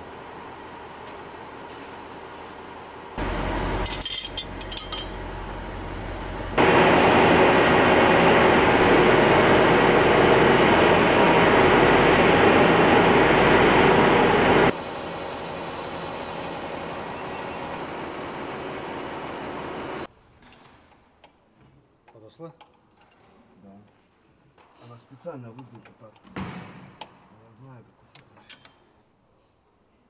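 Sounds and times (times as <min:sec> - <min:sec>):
steady machine hum: 0:03.0 - 0:20.1
steel wrenches clinking: 0:03.8 - 0:05.2.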